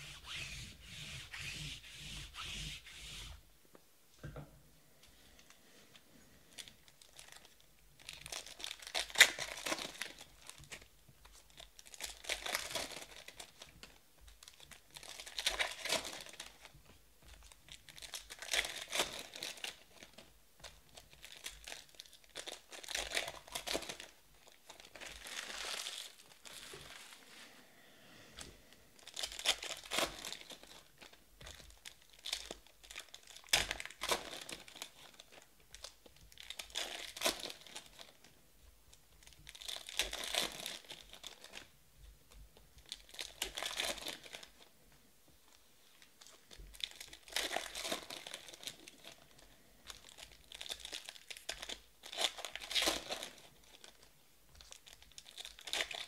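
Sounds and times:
card pack wrappers crinkling tearing: 0:06.6 - 0:16.7, 0:17.7 - 0:20.3, 0:20.9 - 0:27.2, 0:29.0 - 0:38.2, 0:39.2 - 0:41.7, 0:42.8 - 0:44.7, 0:46.2 - 0:56.0.

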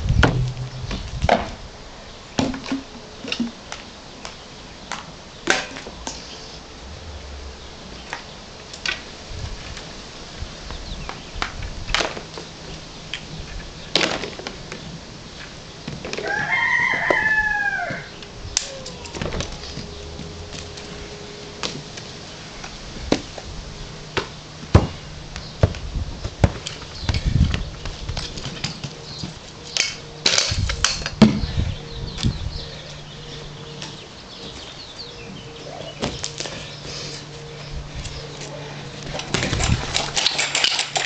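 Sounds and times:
toys clacking and thumping: 0:39.1 - 0:41.0
unicycle clatter: 0:39.1 - 0:41.0.

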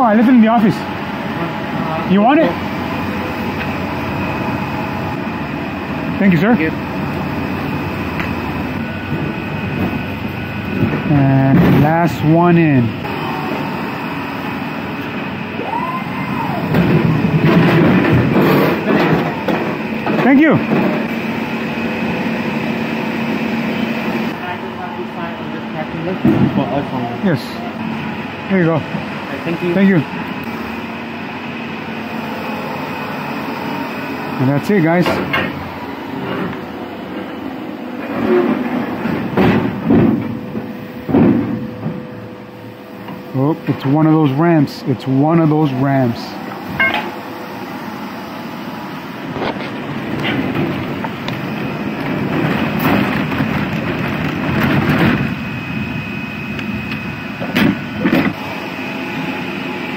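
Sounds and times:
mechanical rumble: 0:00.0 - 0:59.9
pallet jack motor whine: 0:00.0 - 0:59.9
knocks and clanks: 0:10.7 - 0:12.2, 0:16.7 - 0:21.2, 0:26.2 - 0:26.7, 0:35.0 - 0:35.6, 0:38.0 - 0:42.1, 0:46.7 - 0:47.2, 0:49.4 - 0:55.4
wheels rumbling on steel plate: 0:15.2 - 0:21.6, 0:34.8 - 0:42.4, 0:49.2 - 0:58.4.

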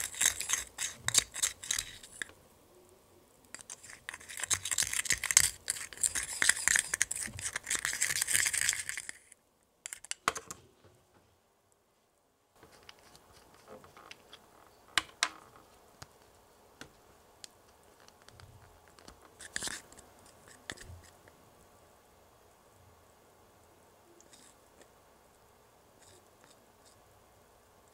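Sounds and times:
plastic spatula scraping cup: 0:00.0 - 0:02.3, 0:03.5 - 0:09.3, 0:19.4 - 0:21.2.

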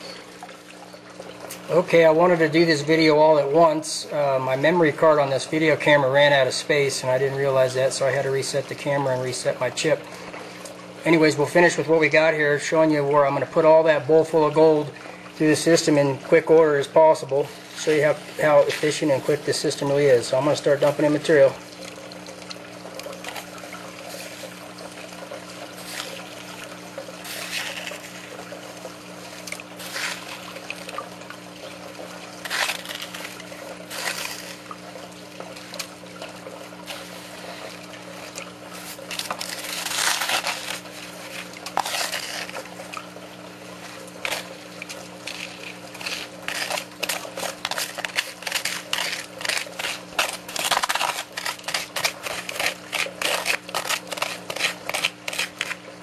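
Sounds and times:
water running through sluice: 0:00.0 - 0:56.0
spoon scraping in bowl: 0:45.2 - 0:55.8.

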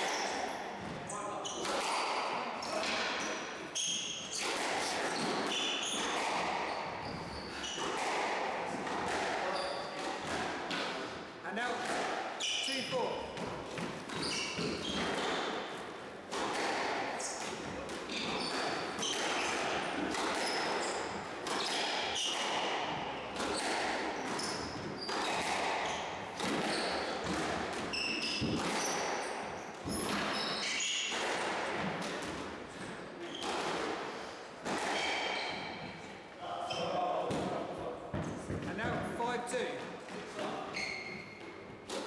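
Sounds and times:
trainers squeaking on wooden floor: 0:00.0 - 0:08.2, 0:08.8 - 0:10.4, 0:12.4 - 0:15.8, 0:16.4 - 0:31.2, 0:38.2 - 0:41.9
squash ball smacking racket and walls: 0:00.0 - 0:42.0.

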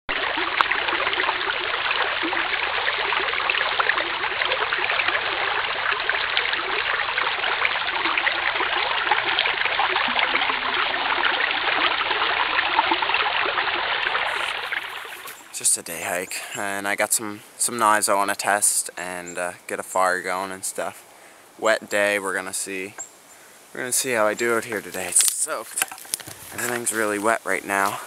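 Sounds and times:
brook rushing over rocks: 0:14.0 - 0:19.2, 0:23.8 - 0:28.0.

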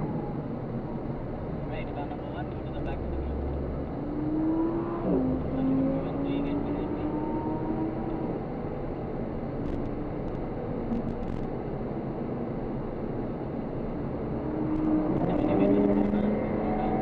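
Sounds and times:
road noise inside car: 0:00.0 - 0:17.0
car engine accelerating: 0:14.1 - 0:17.0.

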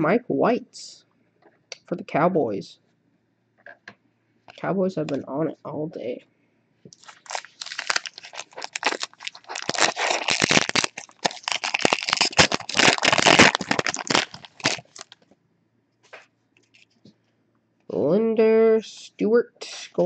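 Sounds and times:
foil wrapper crinkling: 0:06.9 - 0:15.2.

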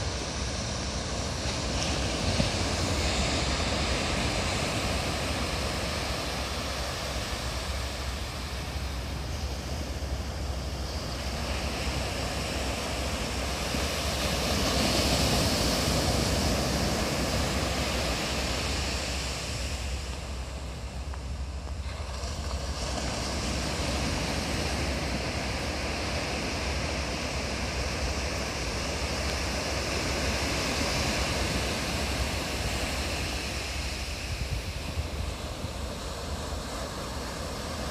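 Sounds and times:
waves breaking on sandy beach: 0:00.0 - 0:37.9
wind rumbling on microphone: 0:00.0 - 0:37.9.

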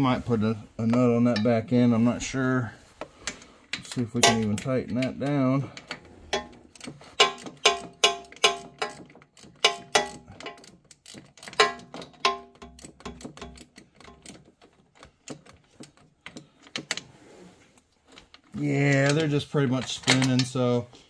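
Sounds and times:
ratchet wrench clicking: 0:05.8 - 0:16.9.

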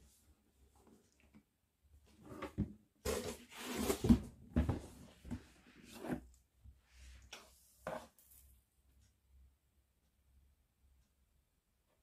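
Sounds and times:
cardboard scraping and rubbing: 0:03.1 - 0:04.3.

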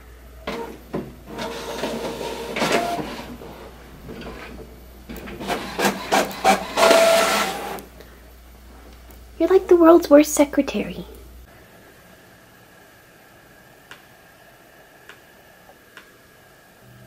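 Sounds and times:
printer whirring and clicking: 0:00.4 - 0:07.9.

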